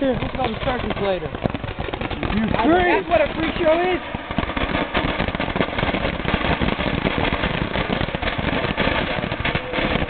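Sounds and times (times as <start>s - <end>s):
firework fountain crackling hiss: 0.0s - 10.0s.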